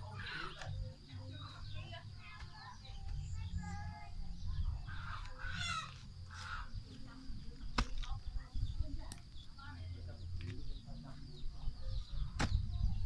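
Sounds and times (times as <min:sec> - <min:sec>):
bird calls: 0:00.0 - 0:13.0
hoe chopping into soil: 0:07.7 - 0:08.2, 0:12.3 - 0:12.7.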